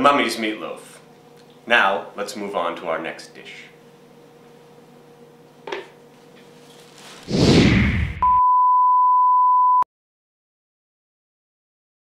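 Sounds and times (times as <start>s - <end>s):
single-pitch test tone: 8.2s - 9.8s.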